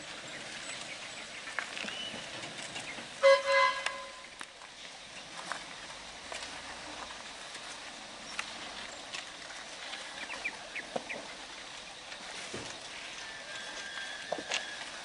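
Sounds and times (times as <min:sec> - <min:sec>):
steady background hiss: 0:00.0 - 0:15.0
bird-like chirps: 0:00.2 - 0:04.4.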